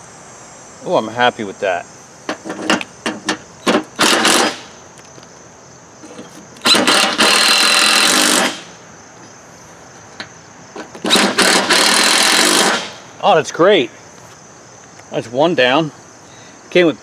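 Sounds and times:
impact driver hammering bolts: 2.3 - 4.7, 6.0 - 8.7, 10.8 - 13.0.

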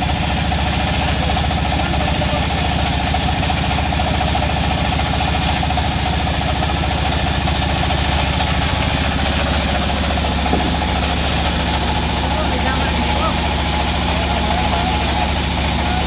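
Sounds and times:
sawmill engine idling: 0.0 - 16.0.

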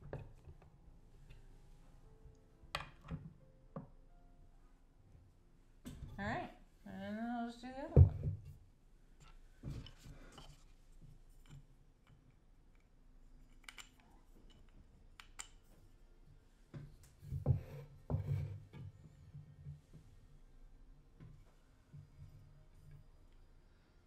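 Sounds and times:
wooden parts clicking on table: 13.5 - 15.6.

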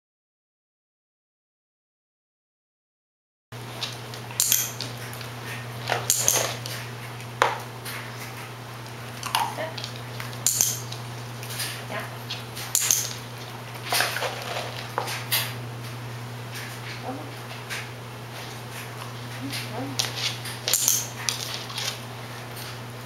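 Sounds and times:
steady low hum: 3.6 - 23.0
dog claws tapping on wooden floor: 3.8 - 8.5, 9.1 - 15.9, 18.8 - 22.8
training clicker clicks: 4.4 - 4.9, 10.4 - 10.9, 12.7 - 13.2
dog collar clinking: 4.4 - 5.1, 6.0 - 6.6, 10.4 - 11.0, 12.8 - 13.2, 20.6 - 21.6.

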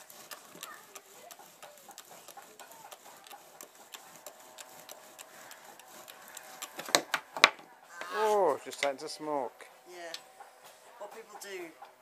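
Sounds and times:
bow drill scraping wood: 0.0 - 7.2.

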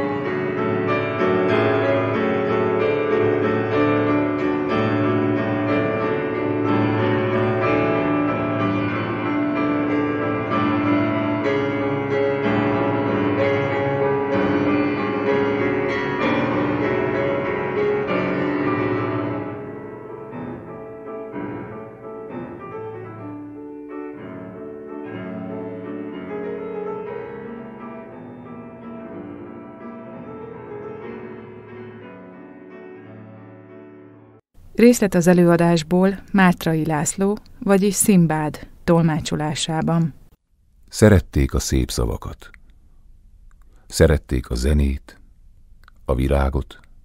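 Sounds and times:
instrumental piano music: 0.0 - 34.4.

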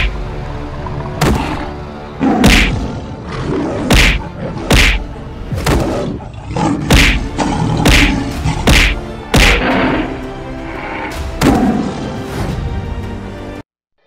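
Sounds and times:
background music: 0.0 - 13.6
heavy thudding hits: 3.9 - 5.9, 6.8 - 9.6.

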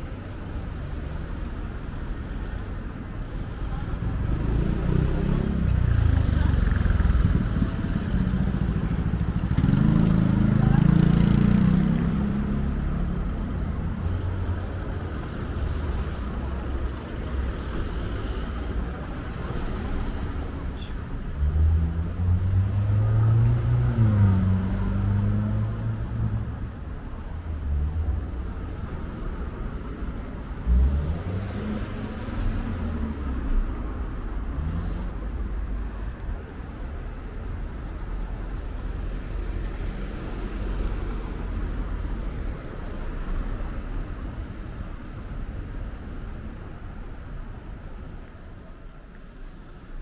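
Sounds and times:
vehicles passing with engine rumble: 0.0 - 50.0.

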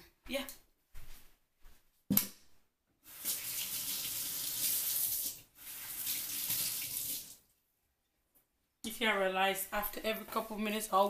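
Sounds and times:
tap water running into sink: 3.1 - 7.4.

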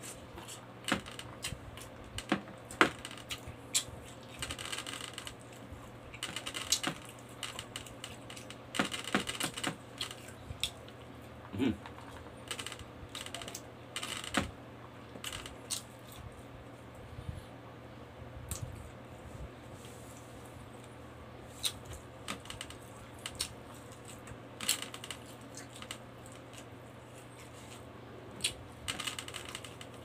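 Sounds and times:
low steady hum: 0.0 - 30.0
person chewing and lip smacking: 23.2 - 24.2, 28.4 - 28.6.

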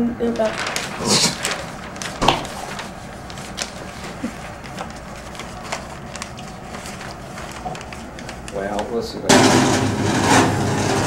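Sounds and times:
newspaper crinkling and rustling: 0.3 - 9.0.

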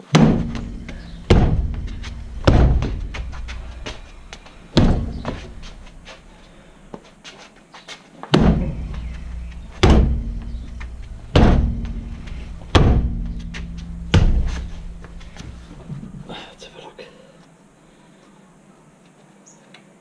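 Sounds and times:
kicks thumping a car tyre: 0.0 - 6.8, 8.3 - 16.2.

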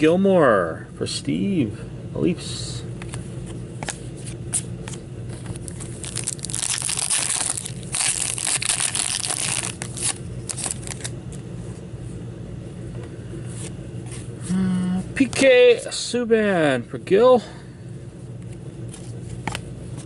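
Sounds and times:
foil wrapper tearing and crackling: 5.6 - 11.1
cards clicking and slapping: 18.9 - 20.0.

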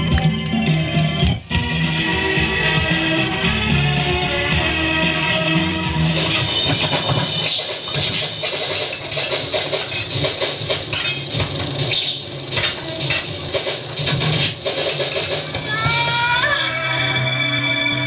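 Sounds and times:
film projector clattering: 5.8 - 16.1.

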